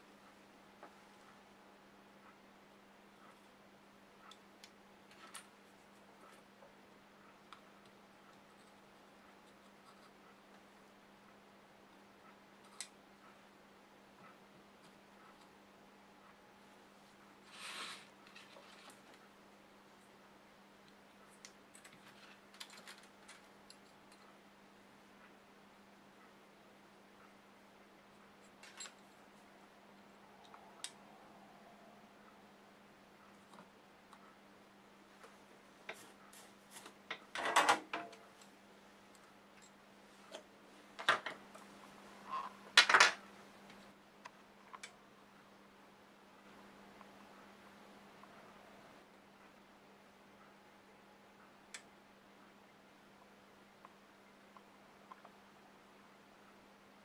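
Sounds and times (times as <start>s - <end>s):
faint steady hum: 0.0s - 57.0s
soldering tools clicking and tapping: 4.2s - 5.6s
rustle: 17.5s - 19.0s.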